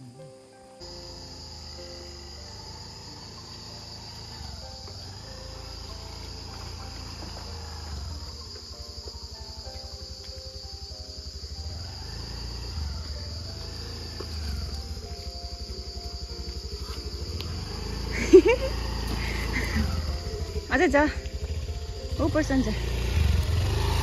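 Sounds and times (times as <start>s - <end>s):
insect chorus: 0.0s - 24.0s.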